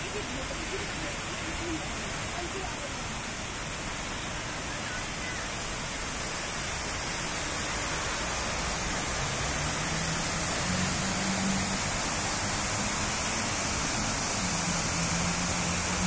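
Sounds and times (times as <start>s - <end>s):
fountain water splashing into basin: 0.0s - 16.0s.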